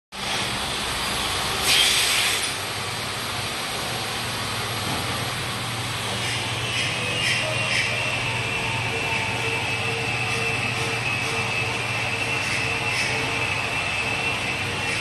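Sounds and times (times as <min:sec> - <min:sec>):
wrapping machine humming: 0:00.2 - 0:15.0
short hiss: 0:01.6 - 0:02.6.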